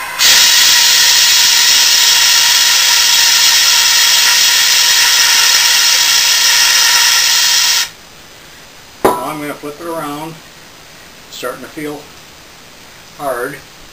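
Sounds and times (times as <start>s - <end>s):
gas hissing from extinguisher: 0.0s - 8.0s.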